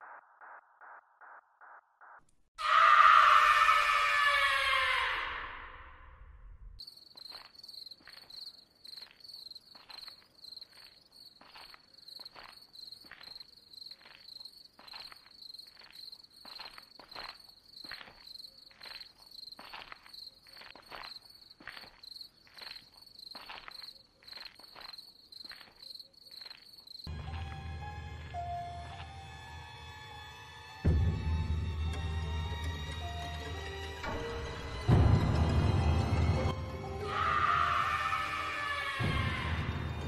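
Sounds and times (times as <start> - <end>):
person screaming: 2.6 - 5.8, 37.0 - 39.8
footsteps on asphalt: 6.8 - 27.5
crickets chirping: 6.8 - 27.6.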